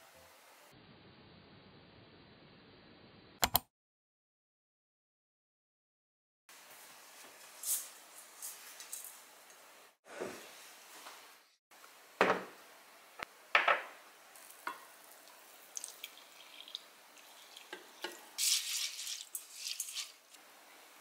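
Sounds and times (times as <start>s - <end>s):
water pouring: 14.3s - 20.4s
rice stirring wet scraping: 17.2s - 20.4s.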